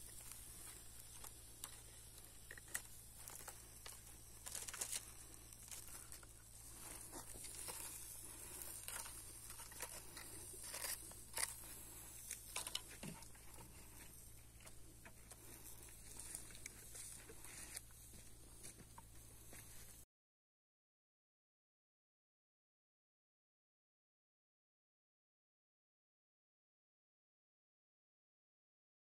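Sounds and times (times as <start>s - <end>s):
palm leaves rustling: 0.0s - 18.8s.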